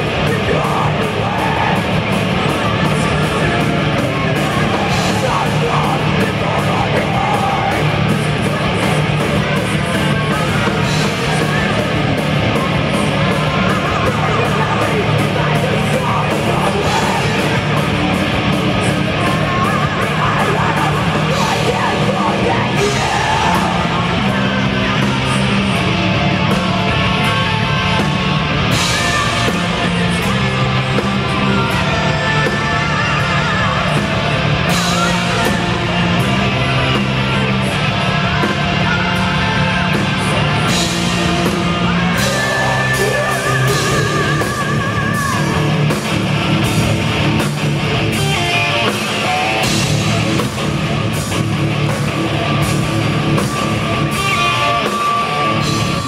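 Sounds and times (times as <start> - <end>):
heavy metal band playing: 0.0 - 56.0
woman singing and shouting: 41.8 - 45.7.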